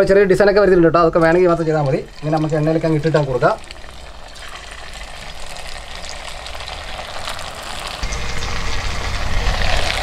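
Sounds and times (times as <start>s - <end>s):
hot oil sizzling: 0.0s - 10.0s
low rumble: 8.0s - 10.0s.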